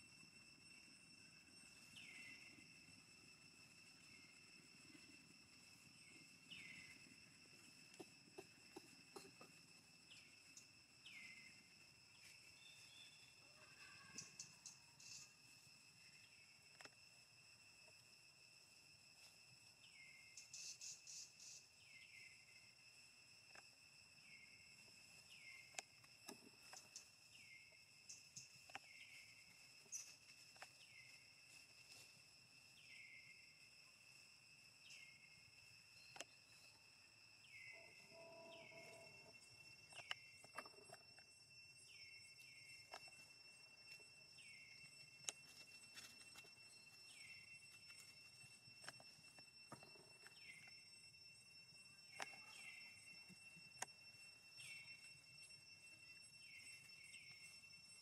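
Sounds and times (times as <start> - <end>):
insects trilling: 0.0 - 58.0
short falling insect call: 0.0 - 58.0.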